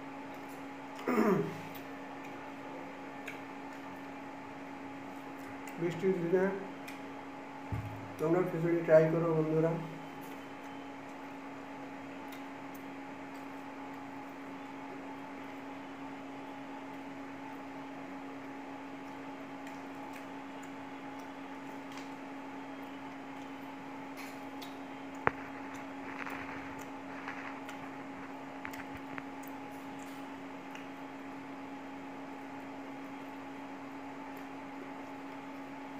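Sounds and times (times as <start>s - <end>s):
appliance humming: 0.0s - 35.9s.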